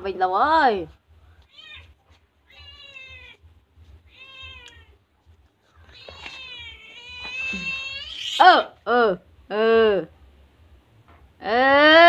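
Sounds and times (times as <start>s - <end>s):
cat meowing: 1.4s - 3.4s, 4.0s - 5.0s, 5.8s - 8.5s.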